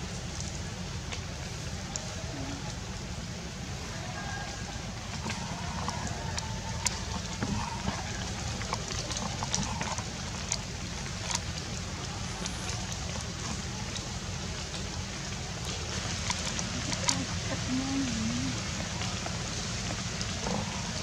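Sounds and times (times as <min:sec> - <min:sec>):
water dripping from trees: 0:00.0 - 0:21.0
steady background hiss: 0:09.8 - 0:21.0.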